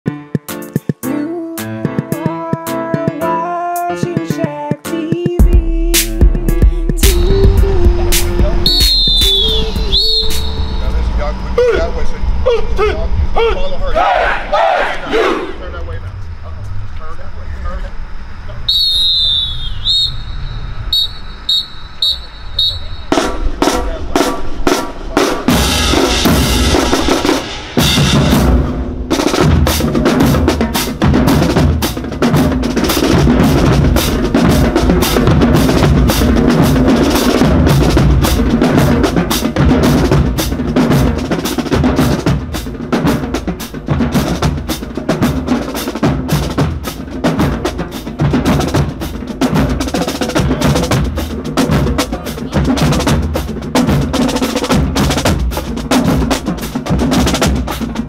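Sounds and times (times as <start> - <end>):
bass drums beating: 4.5 - 13.4, 18.8 - 58.0
snare drums beating: 5.2 - 10.9, 20.9 - 58.0.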